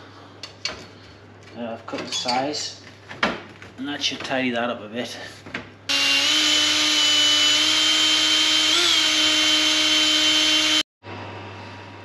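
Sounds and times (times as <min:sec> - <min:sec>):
cordless drill drilling into metal: 0:05.9 - 0:10.8.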